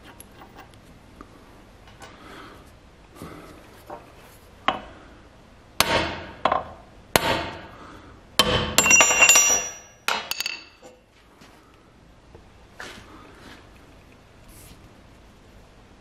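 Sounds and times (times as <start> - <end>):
hammer striking metal: 5.8 - 7.6, 8.4 - 10.8.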